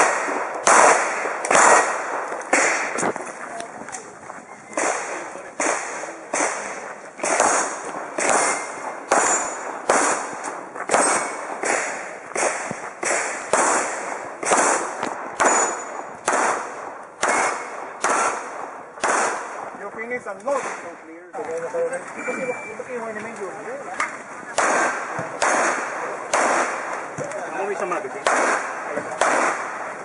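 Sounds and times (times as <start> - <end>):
pistol shots: 0.0 - 3.1, 4.7 - 19.8, 20.5 - 21.0, 24.0 - 30.0
steel target ringing: 8.4 - 9.8, 15.4 - 16.1.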